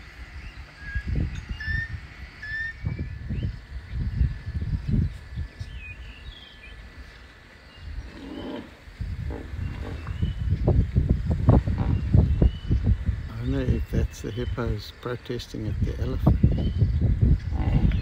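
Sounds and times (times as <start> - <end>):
small birds chirping: 0.0 - 18.0
hippos grunting: 8.0 - 10.4, 17.5 - 18.0.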